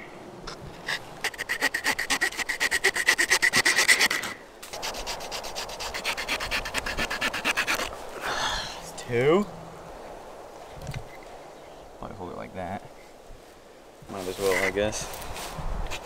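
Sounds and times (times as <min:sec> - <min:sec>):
small saw cutting branch: 0:00.8 - 0:08.0.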